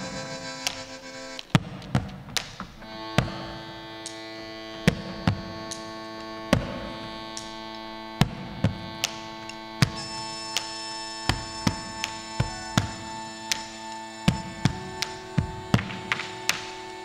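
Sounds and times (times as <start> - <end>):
held keyboard chord: 0.0 - 1.5, 2.8 - 17.0
folk drum struck with sticks: 1.4 - 3.4, 9.8 - 10.2, 11.3 - 16.8.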